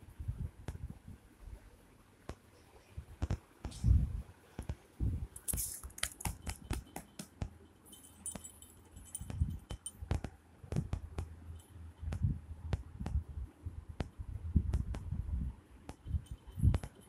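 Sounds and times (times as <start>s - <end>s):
thin ringing: 5.3s - 10.1s, 16.0s - 17.0s
cat collar bell jingling: 5.4s - 10.0s, 16.1s - 17.0s.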